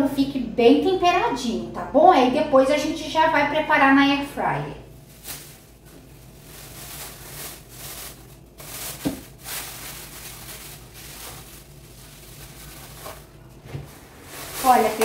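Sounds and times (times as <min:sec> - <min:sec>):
plastic bag rustling and crinkling: 0:04.9 - 0:15.0.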